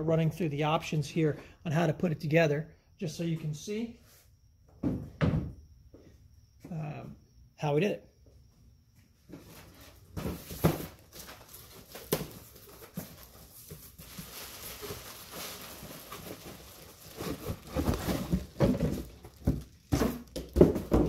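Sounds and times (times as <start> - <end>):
scraping and rustling cardboard: 9.3 - 21.0
plastic bag crinkling: 11.0 - 19.9
cardboard box knocks: 17.4 - 21.0.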